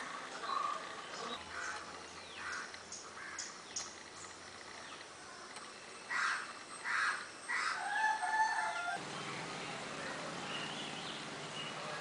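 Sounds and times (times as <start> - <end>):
small birds chirping: 0.2 - 8.0, 8.9 - 12.0
rooster crowing: 7.6 - 9.0.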